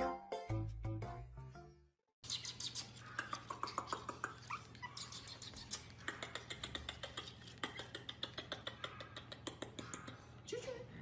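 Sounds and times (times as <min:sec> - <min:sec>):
puppy squeaking and whimpering: 0:02.3 - 0:09.4.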